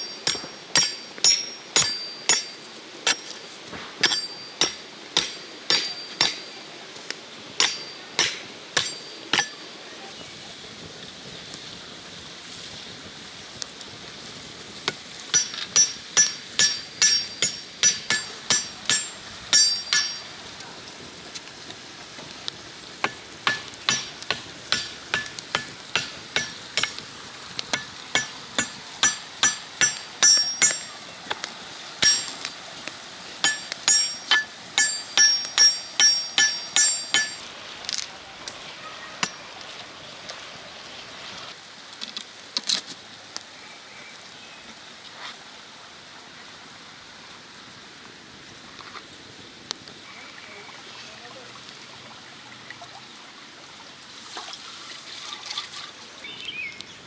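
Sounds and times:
sharp strikes on ringing metal: 0.0 - 3.3, 4.0 - 6.5, 7.6 - 9.6, 15.3 - 20.3, 27.8 - 30.9, 33.4 - 37.5.

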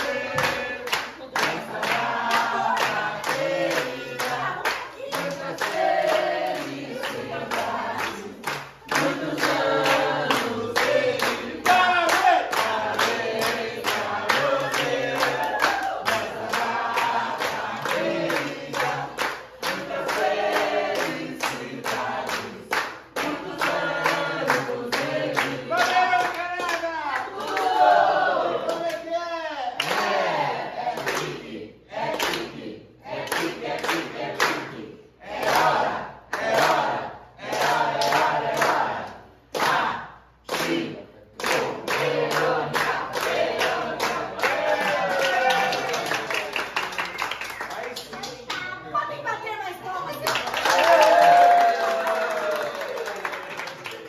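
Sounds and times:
group singing: 0.0 - 46.4
people clapping along: 0.0 - 49.1, 49.7 - 54.0.

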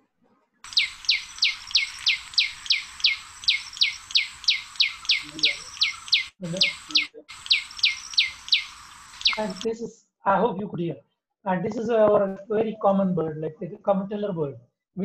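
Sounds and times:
bird calling sharp downward notes: 0.7 - 9.7.

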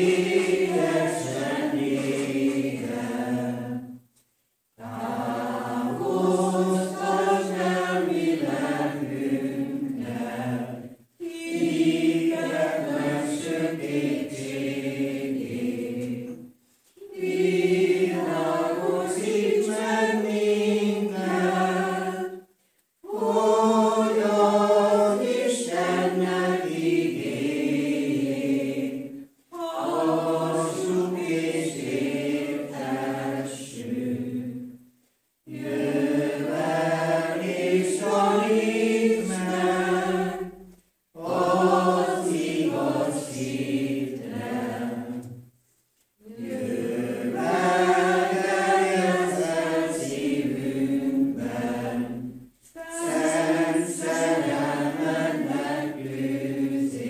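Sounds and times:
congregation singing a hymn: 0.0 - 4.1, 4.7 - 45.5, 46.1 - 57.0.

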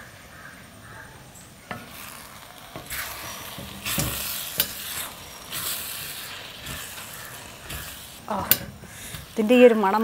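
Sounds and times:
ladle stirring wet food: 1.7 - 10.0.

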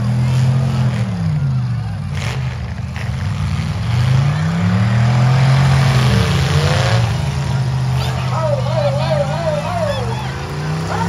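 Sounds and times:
car engine revving hard: 2.2 - 11.0.

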